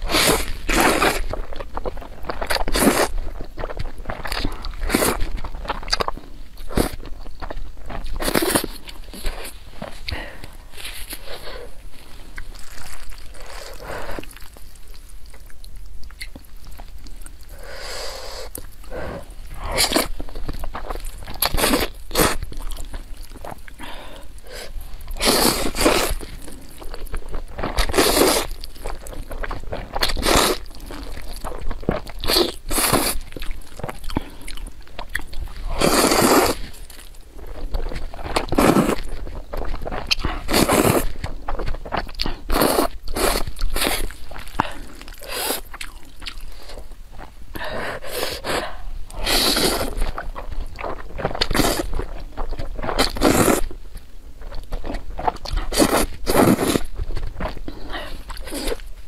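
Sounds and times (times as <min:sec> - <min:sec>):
chewing: 0:00.0 - 0:59.0
person slurping noodles: 0:17.5 - 0:20.2, 0:23.8 - 0:26.2, 0:27.7 - 0:28.5, 0:35.6 - 0:36.8, 0:38.4 - 0:39.1, 0:40.0 - 0:41.2, 0:42.3 - 0:45.7, 0:47.6 - 0:50.2, 0:52.9 - 0:53.7, 0:55.6 - 0:56.9, 0:57.8 - 0:58.8.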